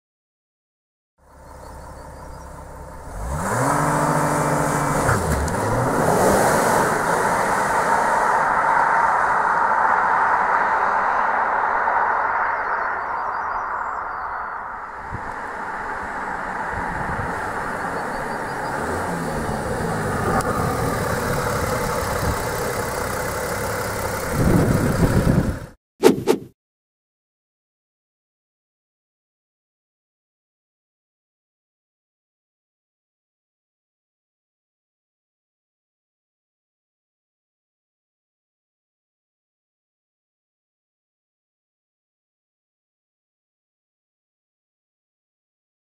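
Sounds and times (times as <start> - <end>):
car engine accelerating hard: 1.3 - 13.4, 15.0 - 25.8
loud steady rushing noise: 7.1 - 14.0.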